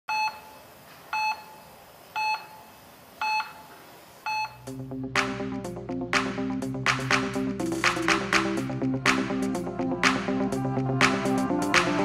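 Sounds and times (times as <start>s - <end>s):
short high beeps: 4.3s - 4.6s
electronic dance music: 4.7s - 12.0s.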